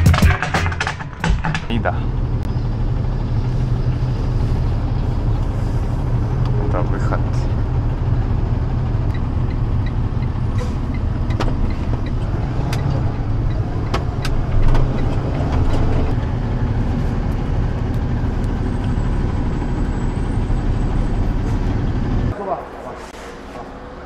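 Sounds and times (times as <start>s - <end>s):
knocks and rattles: 0.0s - 2.3s, 11.2s - 16.2s
truck engine and road rumble: 0.0s - 24.0s.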